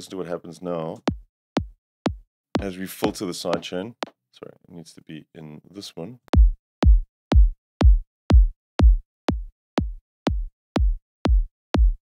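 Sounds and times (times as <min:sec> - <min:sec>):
electronic kick drum: 0:01.0 - 0:03.7, 0:06.3 - 0:12.0.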